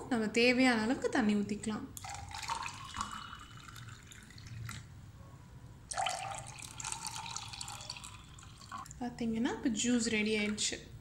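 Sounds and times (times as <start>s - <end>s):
water poured into glass: 2.0s - 4.9s, 5.9s - 8.9s.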